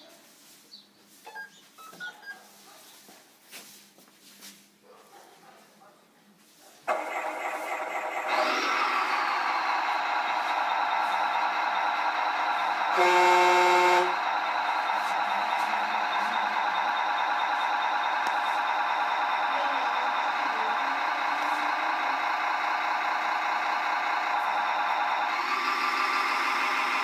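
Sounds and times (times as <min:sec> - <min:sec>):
diesel engine idling through speaker: 0:06.9 - 0:27.0
truck horn blast: 0:12.9 - 0:14.2.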